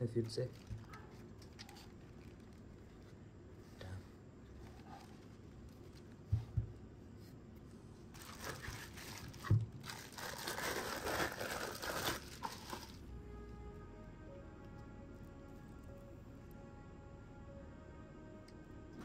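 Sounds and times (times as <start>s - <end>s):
plastic bags crinkling: 0.0s - 3.0s, 8.0s - 13.0s
background music: 11.4s - 19.0s.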